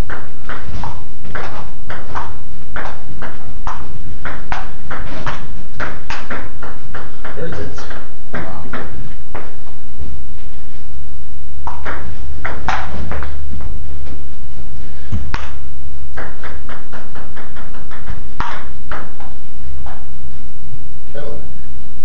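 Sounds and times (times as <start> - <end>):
table tennis ball ticking: 0.0 - 9.6
steady low hum: 0.0 - 22.0.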